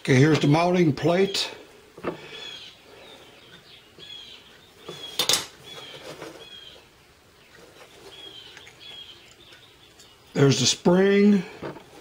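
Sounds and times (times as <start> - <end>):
bird chirping: 2.2 - 10.8.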